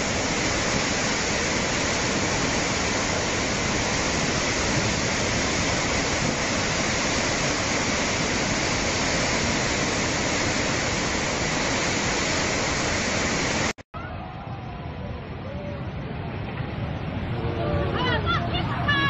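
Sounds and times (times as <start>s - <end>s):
river rushing: 0.0s - 13.8s.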